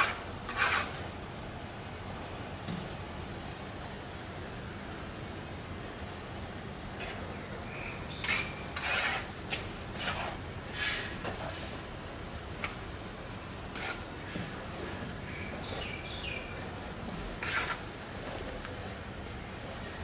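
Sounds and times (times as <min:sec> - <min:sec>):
trowel scraping mortar: 0:00.0 - 0:01.0, 0:08.1 - 0:11.8, 0:13.7 - 0:14.4, 0:17.3 - 0:18.5.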